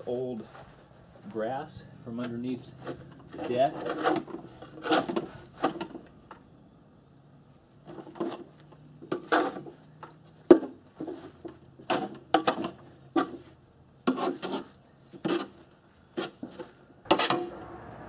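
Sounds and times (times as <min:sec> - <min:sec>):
scraping grass off mower deck: 0:02.2 - 0:06.0, 0:07.8 - 0:10.0, 0:10.7 - 0:17.5.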